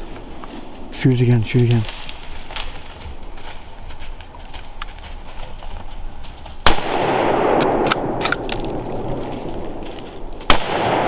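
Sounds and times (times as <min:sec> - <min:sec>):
rifle shot: 0:06.6 - 0:09.7, 0:10.4 - 0:11.0.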